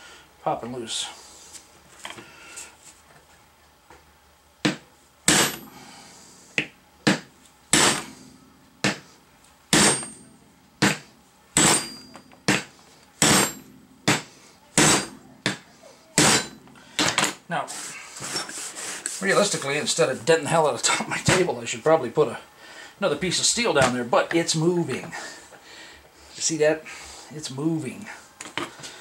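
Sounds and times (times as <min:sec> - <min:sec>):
hammer clanking on steel punch: 0:04.7 - 0:05.7, 0:07.0 - 0:08.2, 0:09.7 - 0:11.0, 0:11.6 - 0:17.4.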